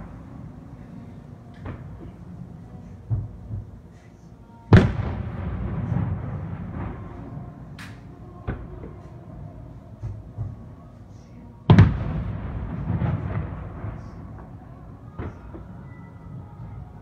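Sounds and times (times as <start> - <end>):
firework booms: 3.1 - 3.7, 4.7 - 7.8, 8.4 - 10.7, 11.7 - 16.8
distant firework bursts: 4.7 - 7.8, 11.7 - 16.9
sharp firework crack: 4.7 - 9.0, 11.7 - 14.4.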